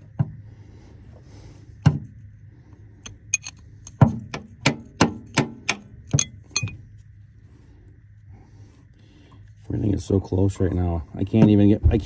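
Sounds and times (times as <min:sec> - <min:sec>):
wrench clinking on metal bolts: 0:03.0 - 0:04.0, 0:05.3 - 0:06.8.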